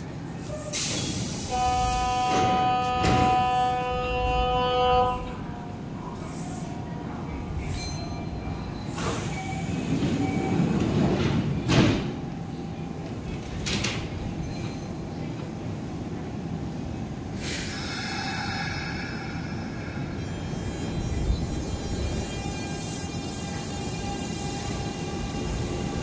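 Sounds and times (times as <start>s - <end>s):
train humming: 0.0s - 26.0s
train doors closing with bang: 0.4s - 6.7s, 7.3s - 16.2s
hiss: 0.7s - 1.8s, 17.4s - 20.3s.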